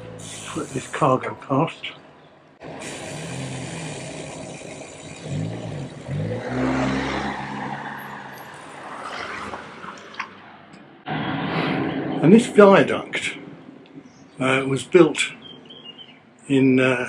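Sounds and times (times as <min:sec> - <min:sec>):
car driving past: 0:05.0 - 0:14.6.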